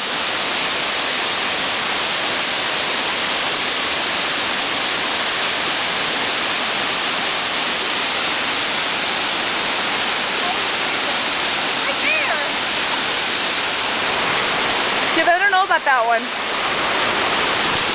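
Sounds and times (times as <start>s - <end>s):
water tumbling over rocks: 6.8s - 17.9s.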